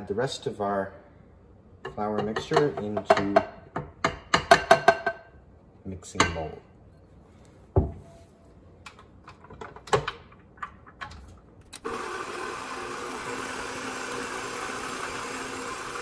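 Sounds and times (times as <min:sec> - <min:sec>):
stand mixer running: 0:11.8 - 0:16.0.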